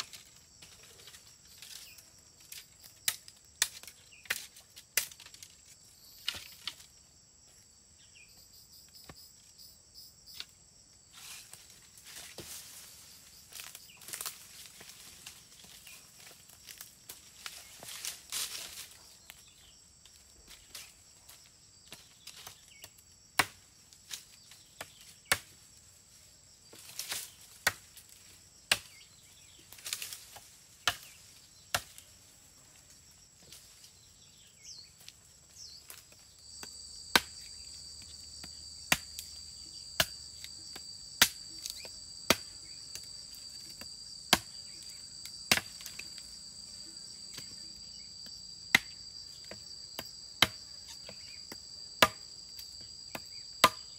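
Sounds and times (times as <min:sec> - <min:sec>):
high insect drone: 0:00.0 - 0:53.9
leafy rustling: 0:11.1 - 0:19.2
blade chopping wood: 0:36.6 - 0:37.4, 0:38.4 - 0:39.3, 0:40.0 - 0:40.2, 0:41.2 - 0:42.5, 0:48.7 - 0:52.2, 0:53.1 - 0:53.9.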